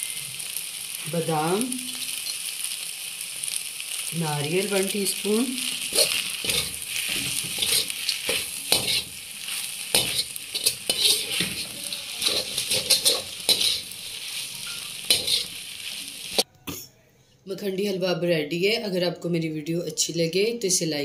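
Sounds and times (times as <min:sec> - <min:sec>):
metal spatula scraping a pot: 0:05.8 - 0:16.4.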